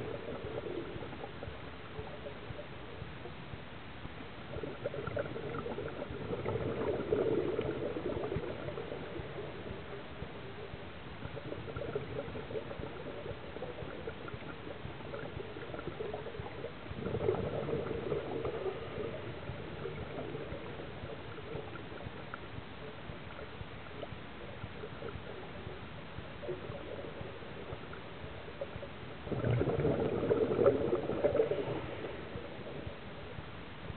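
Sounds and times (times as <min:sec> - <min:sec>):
scuba exhaust bubbles gurgling: 0:00.0 - 0:33.9
underwater watery hiss: 0:29.4 - 0:33.0.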